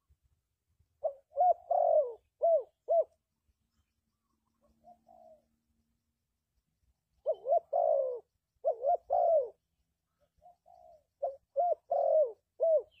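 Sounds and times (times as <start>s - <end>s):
dove cooing: 1.0s - 3.2s, 4.4s - 5.6s, 7.2s - 13.0s.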